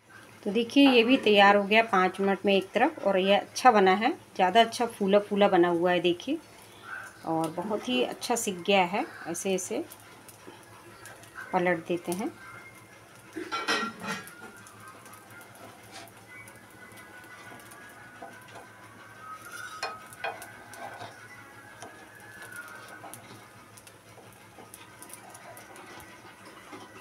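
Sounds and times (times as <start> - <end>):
wooden sticks tapping on pan: 19.4 - 21.1.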